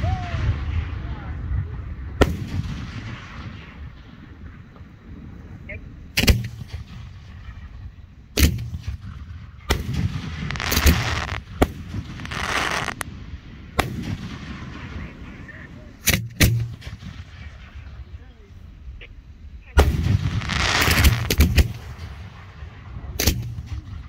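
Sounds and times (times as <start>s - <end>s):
firework booms: 0.0s - 24.0s
firework rushing noise: 6.0s - 18.5s, 19.8s - 24.0s.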